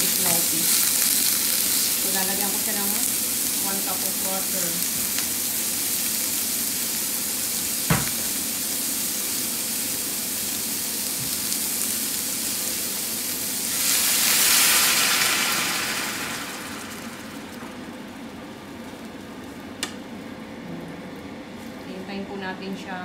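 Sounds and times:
water hissing into steam on pan: 0:00.0 - 0:18.4
meat sizzling in a frying pan: 0:00.0 - 0:19.6
knock: 0:07.9 - 0:08.3.

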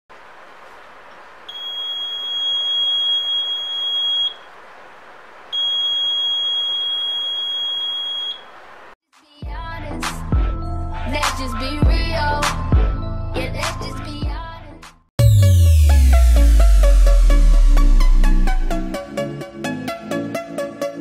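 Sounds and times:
alarm buzzer high steady tone: 0:01.5 - 0:04.4, 0:05.6 - 0:08.5.

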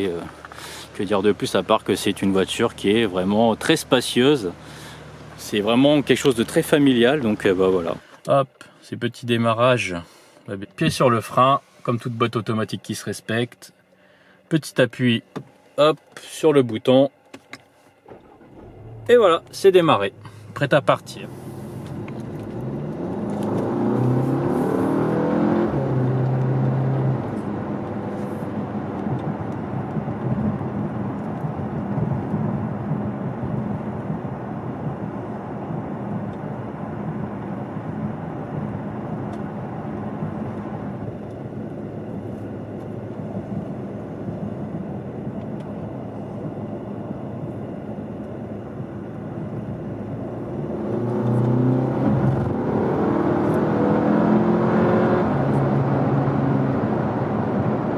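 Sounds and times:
car engine accelerating: 0:00.0 - 0:08.0, 0:18.0 - 0:57.9
tyre and road noise: 0:17.3 - 0:47.5, 0:48.6 - 0:57.9.

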